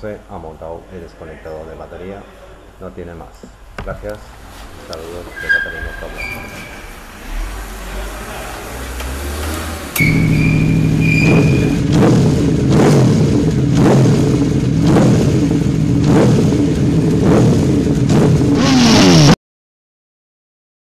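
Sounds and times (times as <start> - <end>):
scooter engine revving: 7.2 - 19.4
high whine: 10.0 - 14.8.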